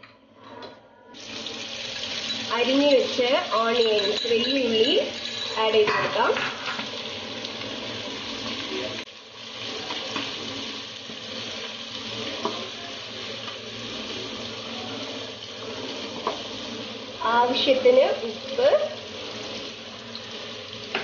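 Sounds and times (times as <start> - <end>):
onions sizzling in oil: 1.2 - 21.0
metal spoon scraping pan: 2.2 - 6.9.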